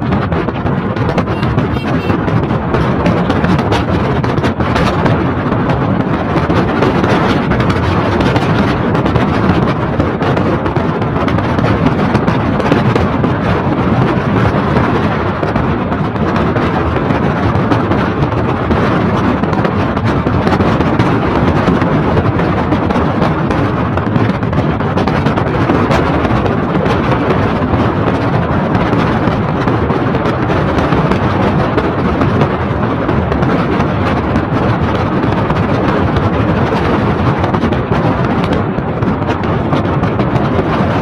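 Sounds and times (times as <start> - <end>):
wind buffeting microphone: 0.0 - 41.0.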